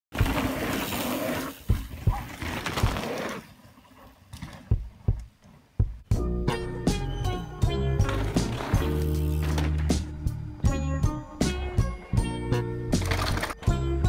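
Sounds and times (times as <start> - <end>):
dull low thumps: 4.7 - 6.9.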